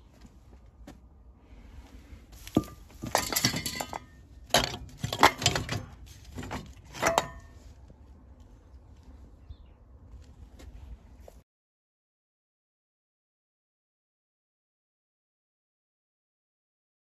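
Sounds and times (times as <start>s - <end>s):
metal tools clinking and rattling: 2.5s - 7.7s.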